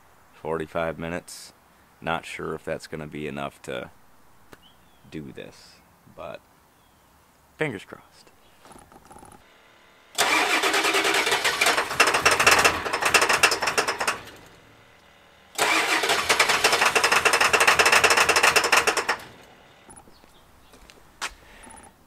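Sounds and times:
diesel engine cranking on starter: 0:10.1 - 0:20.0.

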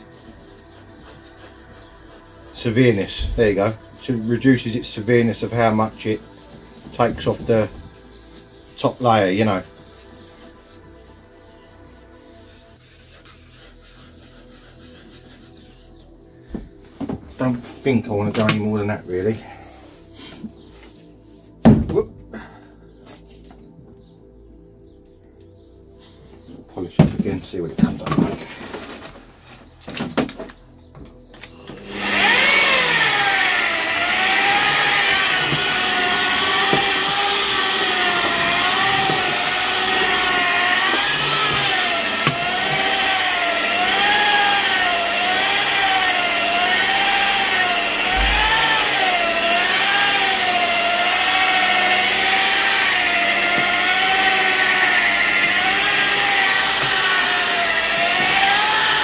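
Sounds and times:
polishing machine whine: 0:31.6 - 0:59.0.

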